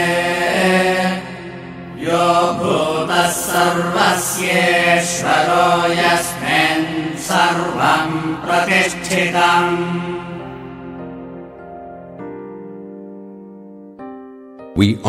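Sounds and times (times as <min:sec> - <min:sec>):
person chanting: 0:14.8 - 0:15.0.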